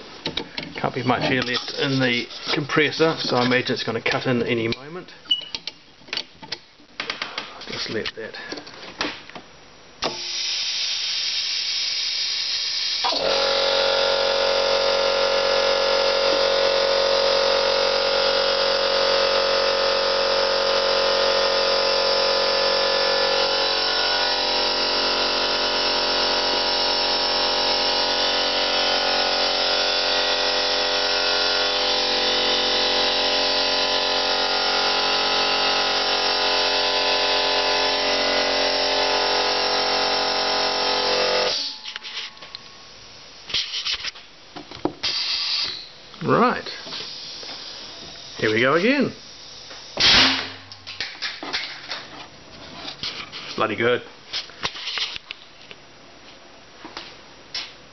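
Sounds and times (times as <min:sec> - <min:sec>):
air compressor motor running: 0:10.0 - 0:42.3, 0:45.0 - 0:46.0, 0:46.7 - 0:50.4.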